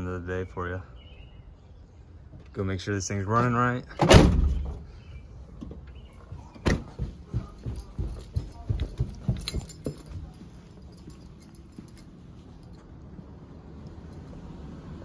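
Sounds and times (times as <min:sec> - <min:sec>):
footsteps on carpeted stairs: 0:05.6 - 0:12.7.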